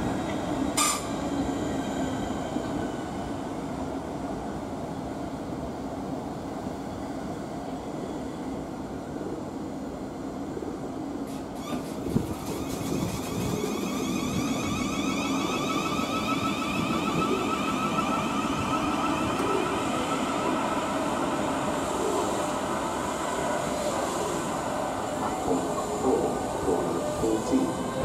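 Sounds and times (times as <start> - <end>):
train rolling rumble: 0.0 - 28.0
train electric whine: 11.3 - 28.0.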